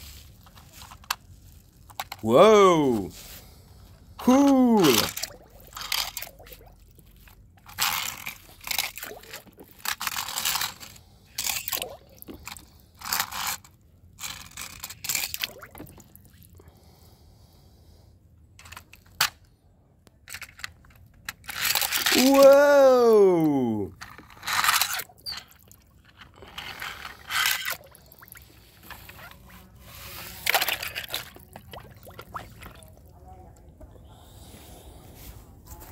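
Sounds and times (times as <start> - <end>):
toy cars scraping and rattling: 0.0 - 2.2, 4.8 - 6.4, 7.2 - 15.5, 18.6 - 19.4, 20.3 - 22.4, 24.0 - 31.5
plastic toy truck splashing into water: 4.5 - 6.8, 30.4 - 32.9
water lapping: 30.5 - 33.1.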